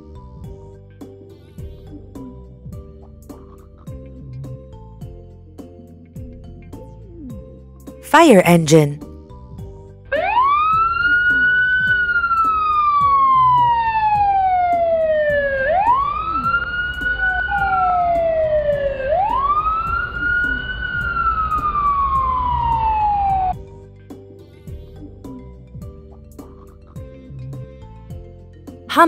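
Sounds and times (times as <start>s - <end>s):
fire engine siren wailing: 10.2s - 23.6s.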